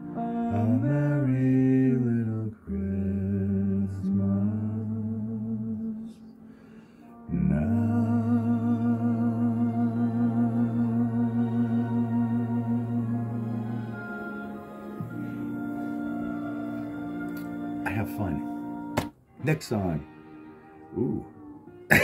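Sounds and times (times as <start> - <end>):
man humming: 20.8 - 22.0.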